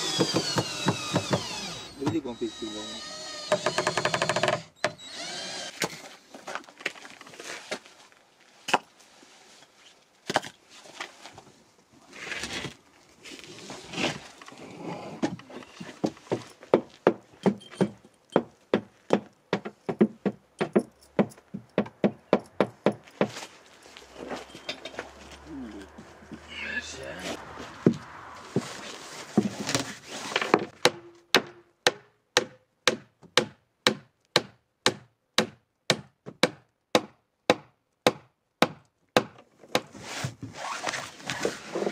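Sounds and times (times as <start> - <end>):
hammer striking wood: 0.0 - 2.2, 3.4 - 5.0, 16.0 - 23.4, 30.6 - 39.9.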